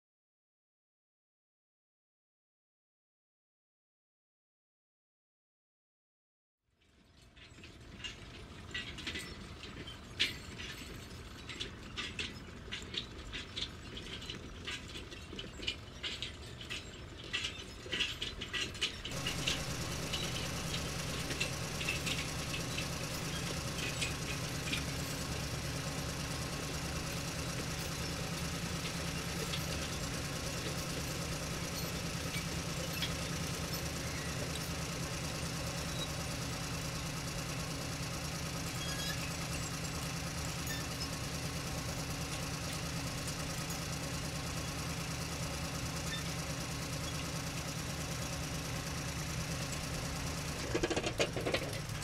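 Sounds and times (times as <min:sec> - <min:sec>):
steady low hum: 0:19.1 - 0:34.5.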